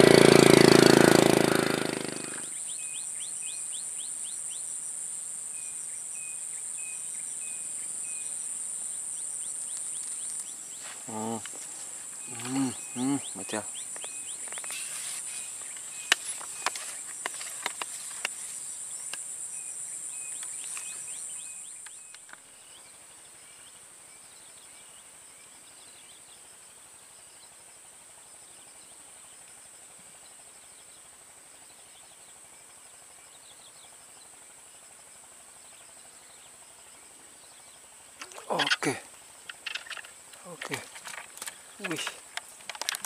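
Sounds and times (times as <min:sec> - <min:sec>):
swamp insects droning: 0:00.0 - 0:43.0
faint chirps: 0:05.5 - 0:17.6
sharp clicks: 0:39.5 - 0:43.0.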